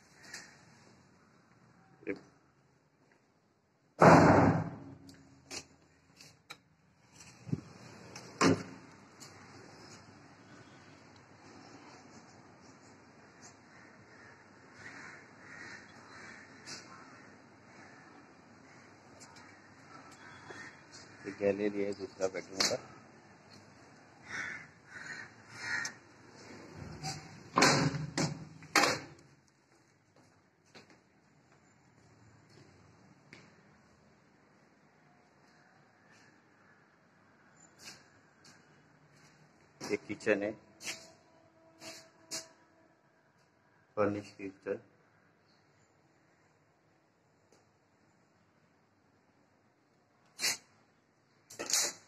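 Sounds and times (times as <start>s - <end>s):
loud knocks and thuds: 4.0s - 4.9s.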